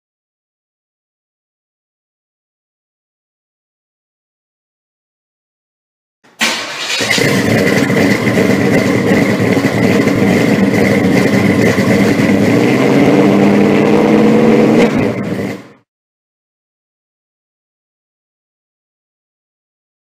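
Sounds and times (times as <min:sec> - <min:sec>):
loud engine running: 0:06.4 - 0:15.8.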